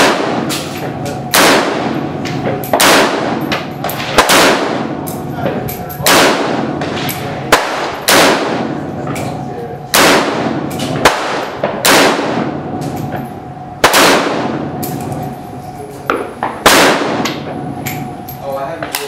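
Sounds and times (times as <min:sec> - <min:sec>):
rifle shots with echo: 0:00.0 - 0:00.7, 0:01.3 - 0:05.2, 0:06.0 - 0:08.9, 0:09.9 - 0:12.8, 0:13.8 - 0:14.8, 0:16.1 - 0:17.6
sharp gunshot cracks: 0:00.0 - 0:00.7, 0:01.3 - 0:02.0, 0:02.8 - 0:03.4, 0:04.0 - 0:05.0, 0:06.0 - 0:08.8, 0:09.9 - 0:12.6, 0:13.8 - 0:14.6, 0:16.5 - 0:17.5.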